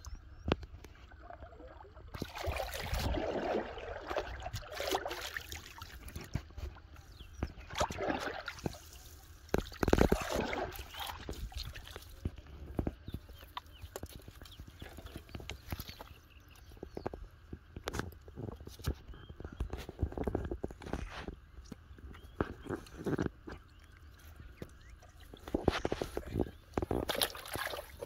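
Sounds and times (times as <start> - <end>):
fish splashing in water: 2.1 - 6.7, 7.4 - 12.3, 26.8 - 28.0.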